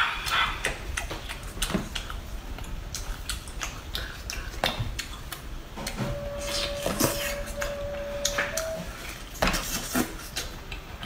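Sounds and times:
steady single tone: 0:05.8 - 0:09.0.

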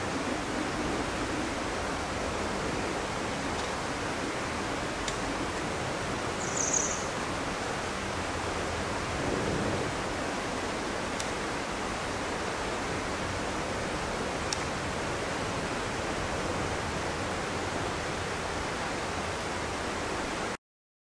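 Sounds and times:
steady rushing noise: 0:00.0 - 0:06.4, 0:07.1 - 0:20.6.

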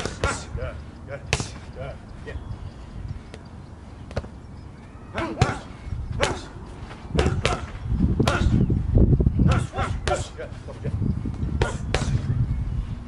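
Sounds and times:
boxing gloves hitting focus mitts: 0:00.0 - 0:00.5, 0:01.2 - 0:01.7, 0:04.1 - 0:04.4, 0:05.2 - 0:08.6, 0:09.5 - 0:10.4, 0:11.6 - 0:12.3.

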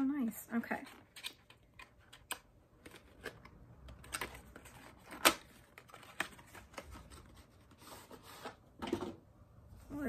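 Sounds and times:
packaging clicks and rustles: 0:00.8 - 0:07.4.

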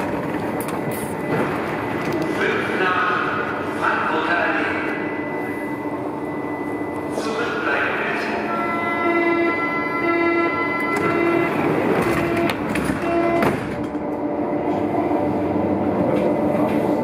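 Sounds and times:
steady train hum: 0:00.0 - 0:17.0
door-closing warning beeps: 0:10.8 - 0:13.7.

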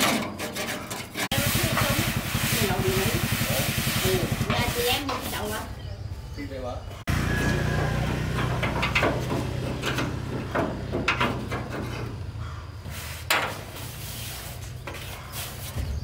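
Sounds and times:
knocks and clatter of repair work: 0:00.0 - 0:02.0, 0:08.0 - 0:12.4, 0:13.3 - 0:13.8.

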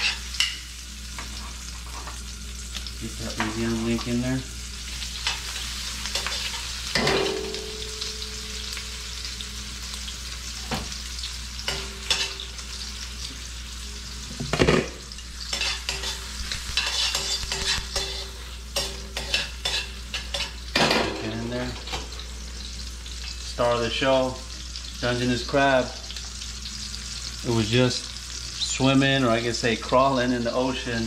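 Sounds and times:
metal tongs scraping a pan: 0:00.0 - 0:00.6, 0:05.2 - 0:08.3, 0:11.7 - 0:12.6, 0:15.4 - 0:22.2
food sizzling in a wok: 0:00.0 - 0:31.0.

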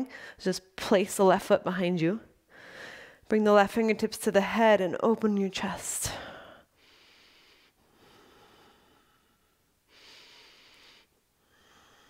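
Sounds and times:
slow breathing: 0:02.5 - 0:03.2, 0:06.1 - 0:12.0.

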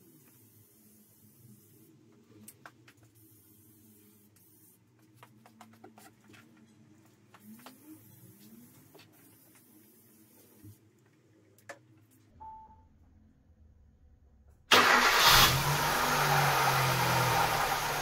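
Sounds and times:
car engine starting and idling: 0:14.7 - 0:18.0.

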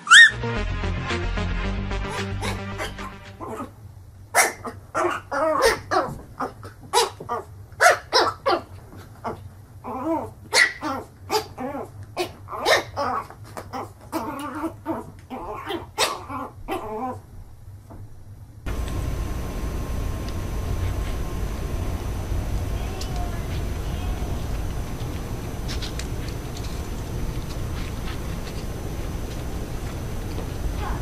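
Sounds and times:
puppy yapping: 0:00.0 - 0:00.4, 0:04.4 - 0:17.2.

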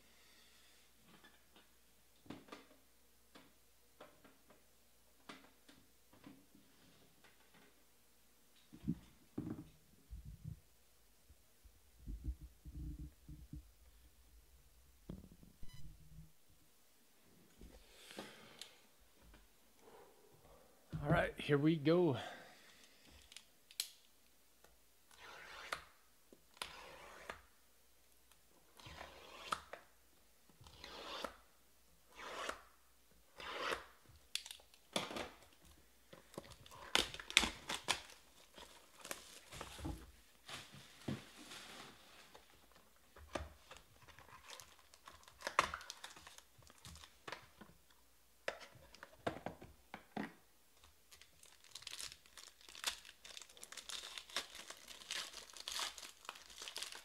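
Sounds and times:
plastic crinkling: 0:36.2 - 0:39.8, 0:43.6 - 0:47.3, 0:50.8 - 0:57.0
shrink-wrap ripping: 0:36.5 - 0:39.6, 0:44.2 - 0:47.2, 0:51.1 - 0:57.0.

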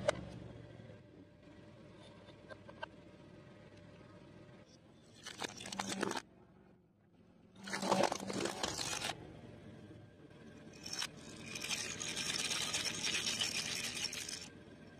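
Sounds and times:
plastic toy scraping on concrete: 0:07.6 - 0:09.2, 0:10.8 - 0:14.5.

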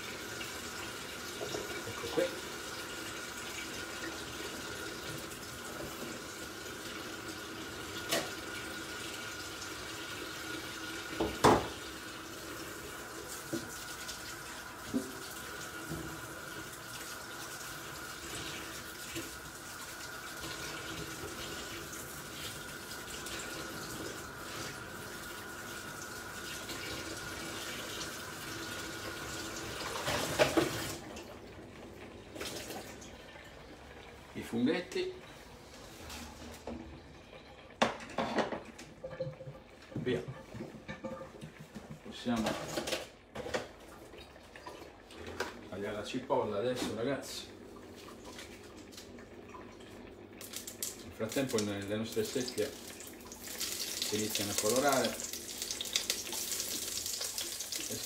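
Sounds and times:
tap running into a sink: 0:11.1 - 0:11.9, 0:13.4 - 0:14.2, 0:14.8 - 0:16.7, 0:29.8 - 0:31.0, 0:50.4 - 0:58.0
knocks in sink: 0:11.2 - 0:11.8.

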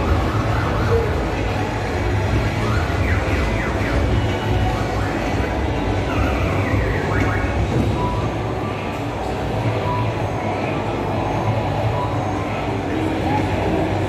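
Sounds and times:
siren-like sweeping electronic tones: 0:00.0 - 0:08.4.

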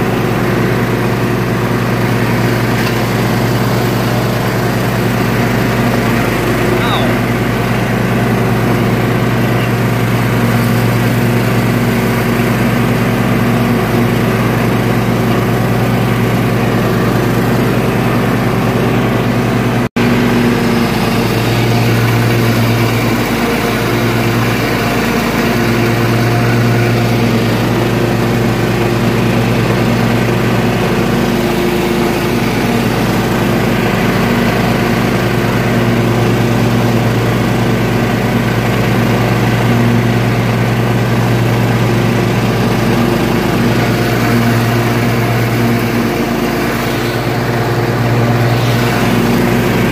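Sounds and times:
riding mower engine running: 0:00.0 - 0:49.9.

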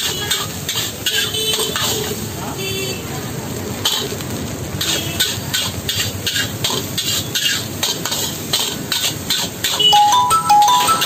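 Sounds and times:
metal spatula scraping wok: 0:00.0 - 0:02.3, 0:03.8 - 0:04.1, 0:04.8 - 0:09.9
frying hiss: 0:00.0 - 0:11.0
gas burner: 0:03.2 - 0:09.9.

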